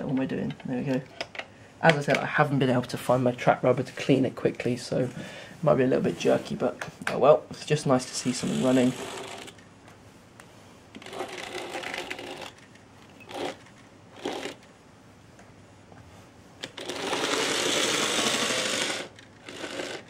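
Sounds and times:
model train rattling buzz: 8.2 - 9.6, 11.0 - 14.7, 16.6 - 20.0.

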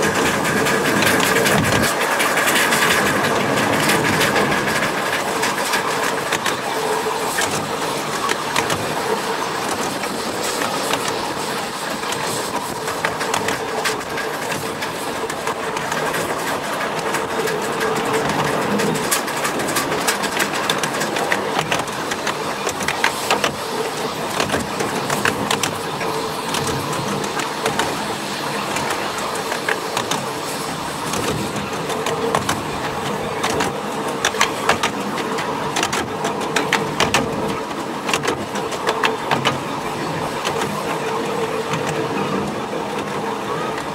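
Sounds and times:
miniature train running on track: 0.0 - 43.9
wheels clicking and rattling: 0.0 - 43.9.

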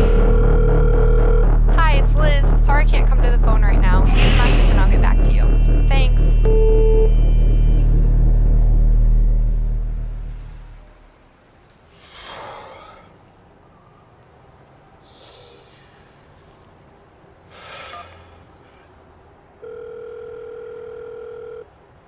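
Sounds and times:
heavy breaths: 11.8 - 13.5, 15.0 - 16.7, 17.4 - 19.1
phone ringback tone: 19.6 - 21.7.

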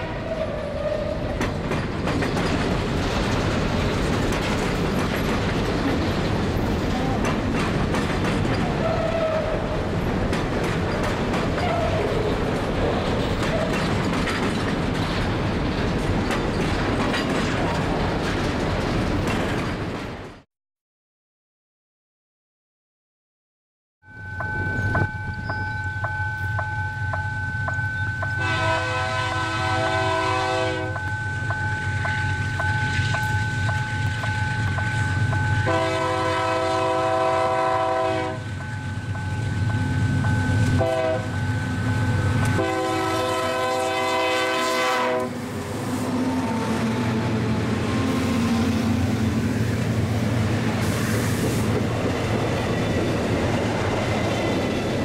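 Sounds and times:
train wheels clattering: 1.2 - 20.4
locomotive horn blasts: 28.4 - 31.0, 35.6 - 38.5, 40.8 - 41.4, 42.5 - 45.4.

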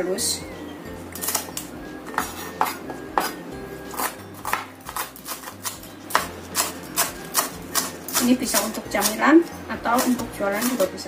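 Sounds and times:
knife chopping on wooden board: 2.1 - 9.2.

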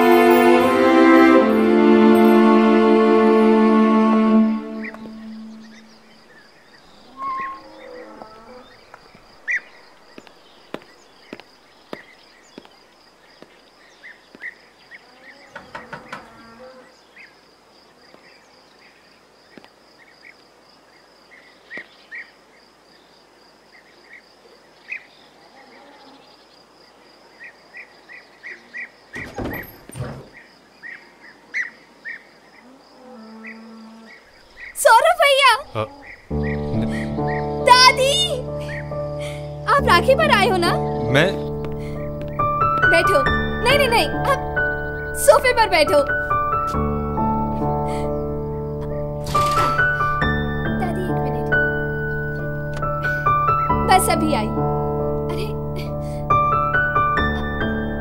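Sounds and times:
pulsing insect trill: 4.5 - 10.3.

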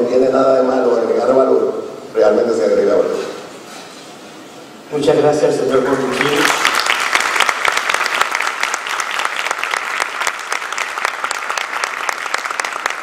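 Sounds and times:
audience clapping: 5.8 - 13.0.

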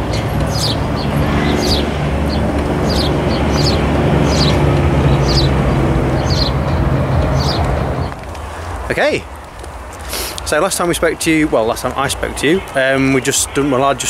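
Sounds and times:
vehicle engine running: 0.0 - 8.9
small bird chirping: 0.1 - 7.6.

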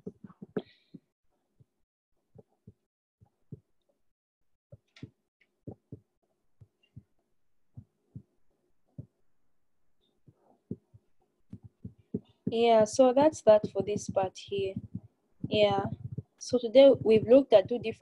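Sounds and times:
soft low thumps: 4.7 - 7.1, 10.3 - 18.0.

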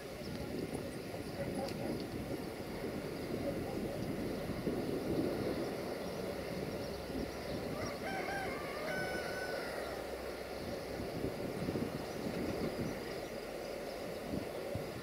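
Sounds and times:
rooster crowing: 7.6 - 10.2.

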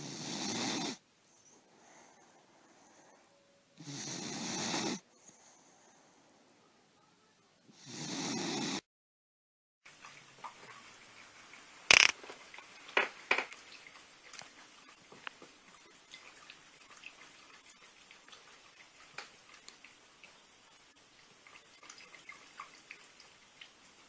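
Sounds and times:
dog lapping water: 13.6 - 24.0.

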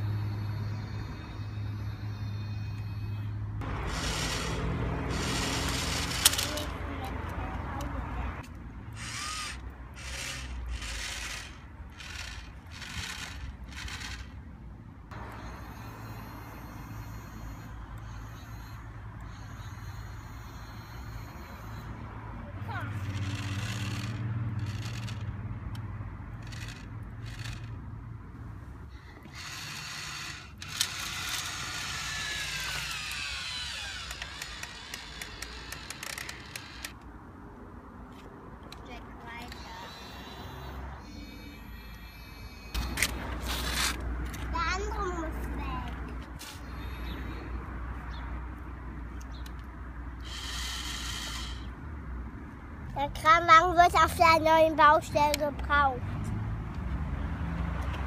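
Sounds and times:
toy crane electric motor bursts: 0.0 - 14.4, 15.1 - 25.4, 26.3 - 27.8, 28.8 - 37.0, 39.2 - 48.2, 49.3 - 51.8
rapid clicks: 29.2 - 37.1.

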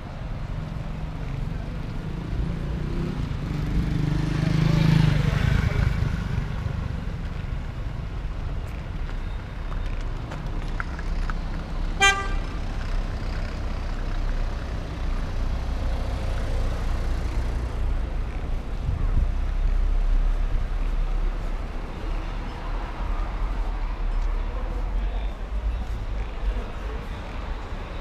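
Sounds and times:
rumble of passing cars: 0.0 - 28.0
vehicle horn toot: 12.0 - 12.6.

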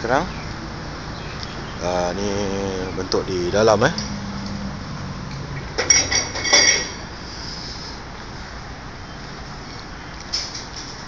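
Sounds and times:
sharp metallic clinks: 5.6 - 7.1.

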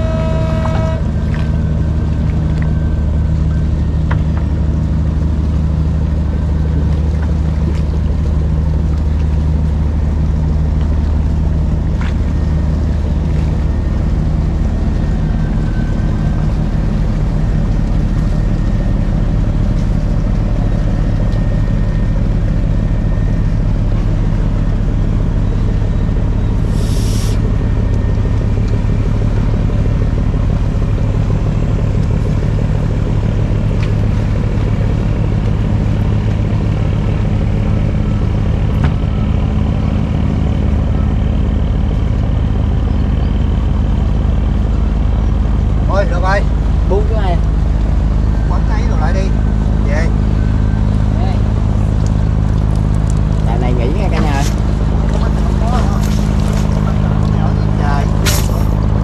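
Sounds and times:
boat engine droning: 0.0 - 59.0
short hiss: 26.7 - 27.4.

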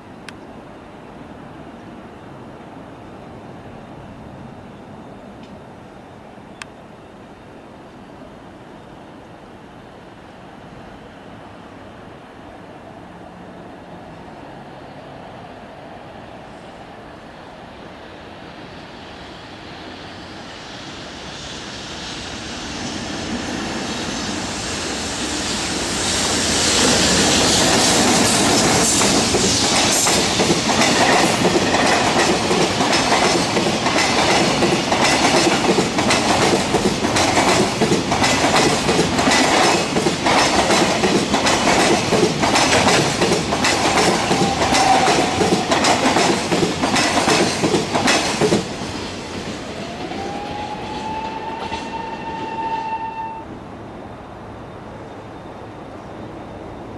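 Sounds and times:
freight train wheels clattering: 22.8 - 49.8.

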